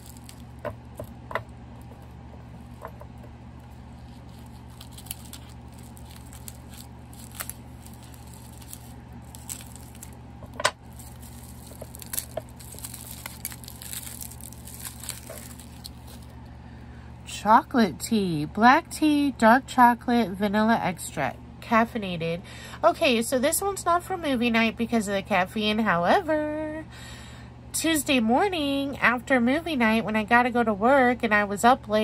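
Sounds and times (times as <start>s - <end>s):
packaging rustling and clicking: 0.0s - 3.2s, 4.0s - 16.3s
steady low hum: 0.0s - 32.0s.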